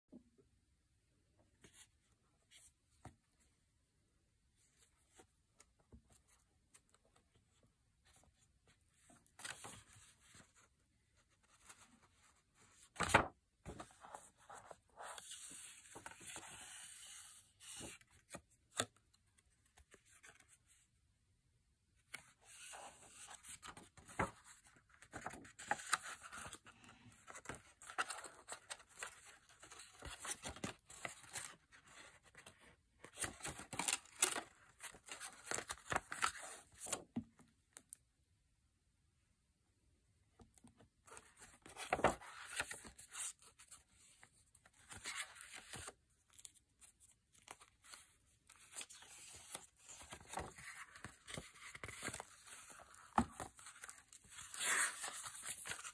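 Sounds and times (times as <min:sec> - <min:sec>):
paper pages rustling: 0:08.1 - 0:20.7, 0:22.1 - 0:37.0, 0:41.1 - 0:55.9.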